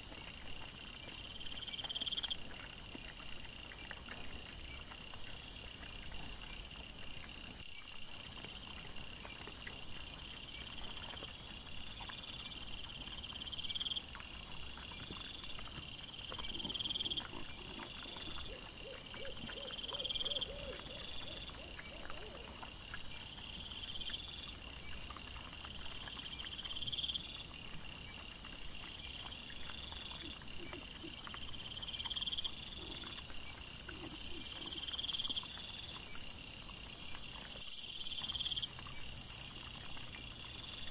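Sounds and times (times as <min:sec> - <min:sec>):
crickets and katydids chirping: 0:16.6 - 0:24.4, 0:30.2 - 0:40.9
lower pulsed insect calls: 0:30.2 - 0:40.9.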